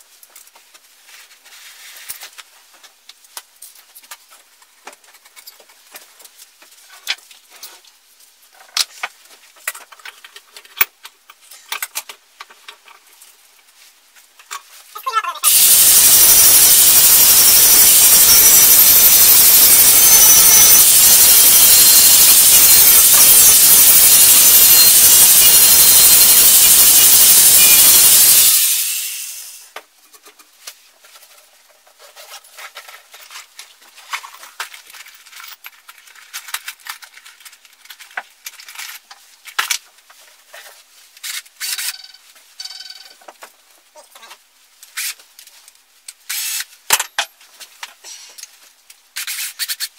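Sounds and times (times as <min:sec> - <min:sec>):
angle grinder grinding metal: 0:15.4 - 0:29.6.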